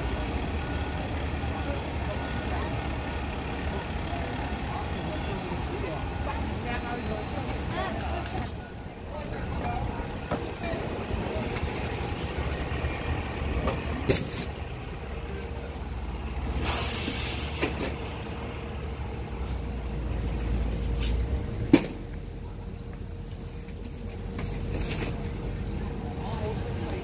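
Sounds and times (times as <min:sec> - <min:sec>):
diesel engine idling: 0:00.0 - 0:27.0
short air hiss: 0:16.6 - 0:17.6.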